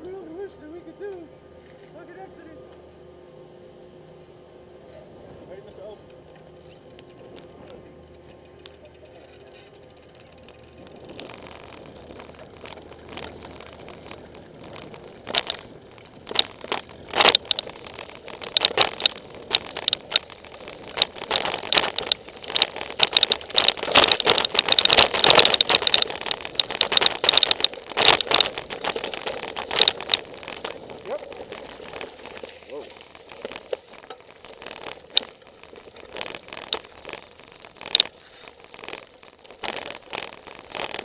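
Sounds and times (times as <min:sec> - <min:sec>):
bike rattling: 0:05.8 - 0:41.0
tyres crunching on gravel: 0:09.5 - 0:41.0.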